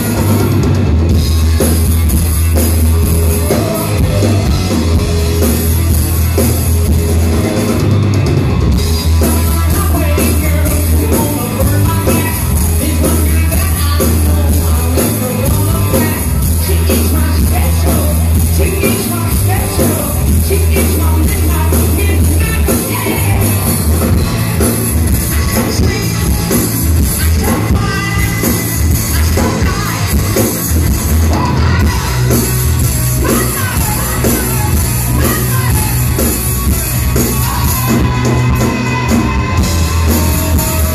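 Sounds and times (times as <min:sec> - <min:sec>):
lead singer: 0:00.0 - 0:40.9
live hard rock band: 0:00.0 - 0:40.9.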